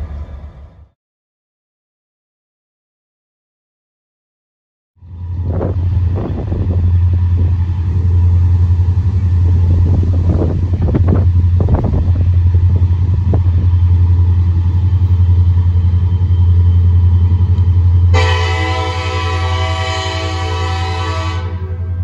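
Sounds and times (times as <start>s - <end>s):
diesel locomotives rumbling: 0.0s - 1.0s, 5.0s - 22.0s
train knocks: 5.4s - 22.0s
locomotive air horn chord: 18.1s - 22.0s.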